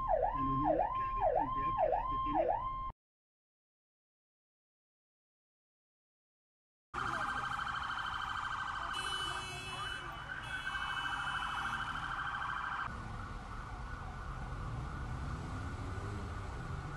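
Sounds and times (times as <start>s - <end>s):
emergency sirens warbling: 0.0s - 2.9s, 7.0s - 16.9s
higher-pitched siren tone: 7.0s - 12.9s
low traffic rumble: 7.0s - 16.9s.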